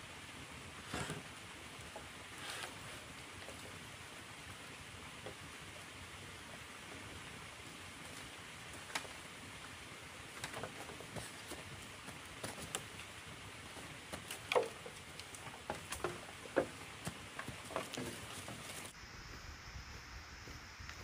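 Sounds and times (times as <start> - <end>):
steady background hiss: 0.0 - 21.0
twigs crackling and snapping: 14.1 - 16.7.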